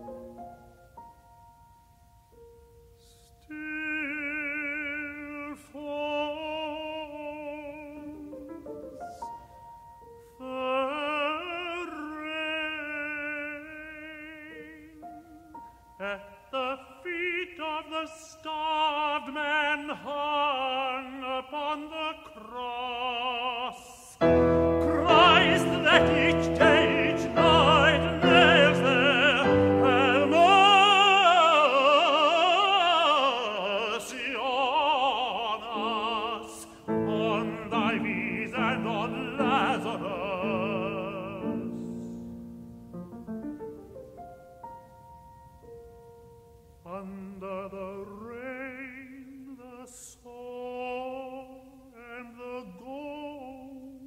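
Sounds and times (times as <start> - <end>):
piano accompaniment: 0.0 - 3.0, 6.2 - 17.6, 24.2 - 32.7, 34.7 - 46.9
tenor singing with vibrato: 2.6 - 54.0.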